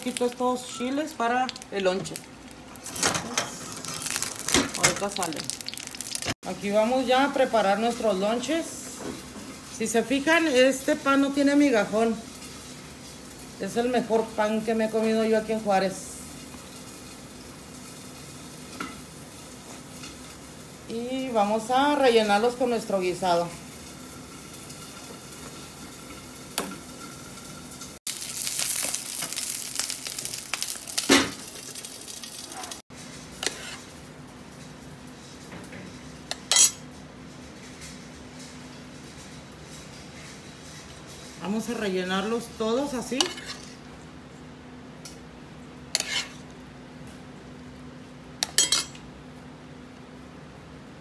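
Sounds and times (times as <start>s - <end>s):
chiles sizzling in a hot pan: 0.0s - 50.3s
metal tongs scraping a pan: 33.4s - 34.0s, 36.3s - 36.9s, 43.1s - 43.8s, 45.9s - 46.4s, 48.4s - 49.0s.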